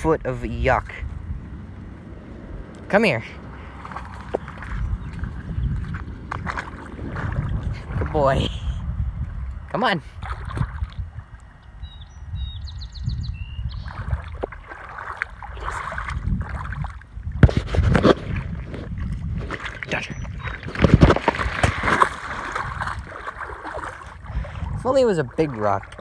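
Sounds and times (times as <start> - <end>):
dog splashing in water: 3.7 - 8.1, 13.8 - 17.0, 17.8 - 24.3
bird chirping: 4.3 - 6.2, 11.6 - 14.2, 19.8 - 20.7.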